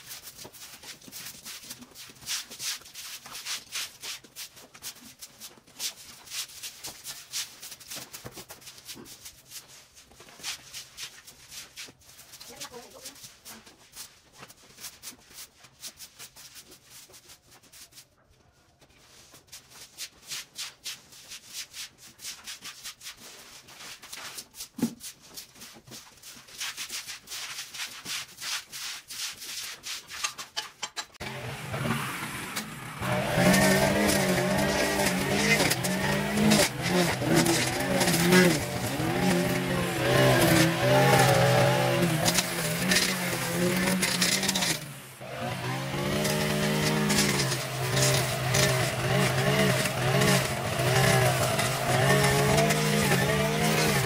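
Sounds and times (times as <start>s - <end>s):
small engine running: 31.2s - 54.0s.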